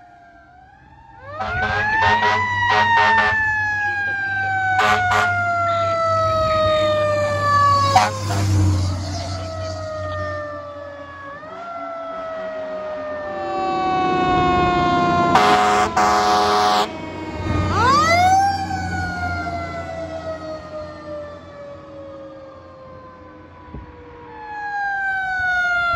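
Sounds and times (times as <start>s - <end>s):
fire engine siren wailing: 0.0s - 25.9s
short rapid horn blasts: 1.4s - 3.4s, 4.8s - 5.3s, 7.9s - 8.6s, 15.4s - 16.9s.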